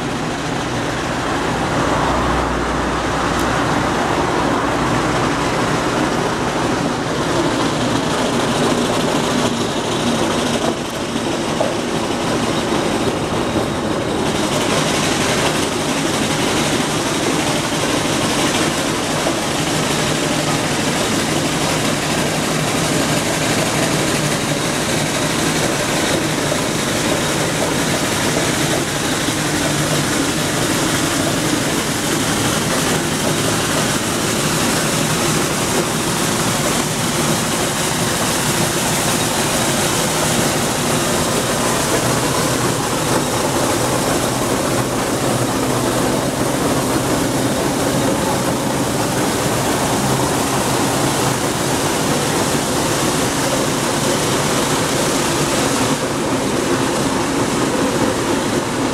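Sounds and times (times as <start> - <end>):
steam roller engine: 0.0 - 58.9.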